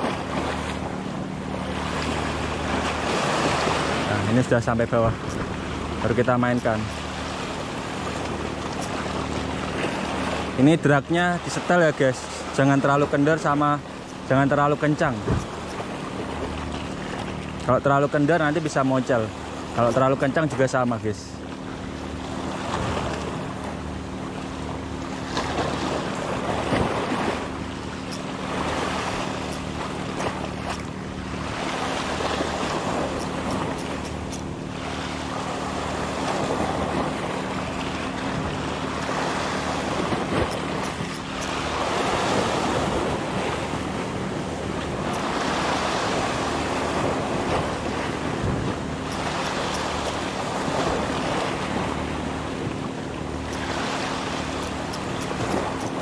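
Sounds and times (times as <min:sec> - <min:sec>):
waves washing over rocks: 0:00.0 - 0:00.8, 0:01.7 - 0:05.4, 0:08.1 - 0:15.6, 0:34.8 - 0:43.7, 0:44.8 - 0:52.0, 0:53.4 - 0:56.0
steady low hum: 0:00.0 - 0:56.0.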